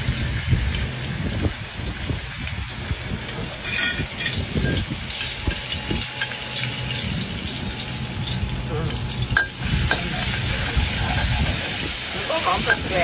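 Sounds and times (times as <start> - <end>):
paste frying in oil: 0.0 - 13.0
metal spatula scraping a wok: 3.6 - 8.0.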